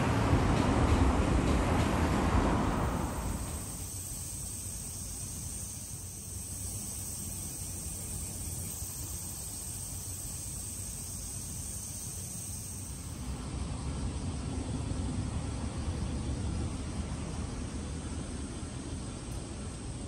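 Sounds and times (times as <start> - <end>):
high insect buzz: 2.8 - 13.2.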